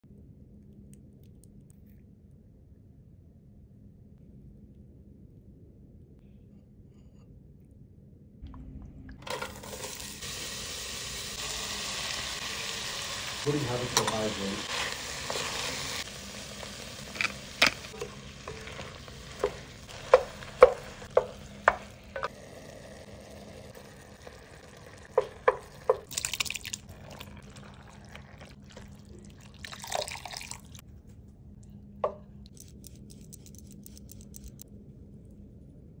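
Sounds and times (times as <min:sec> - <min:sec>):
utensil tapping a pot: 0:17.2 - 0:22.3, 0:25.1 - 0:26.1.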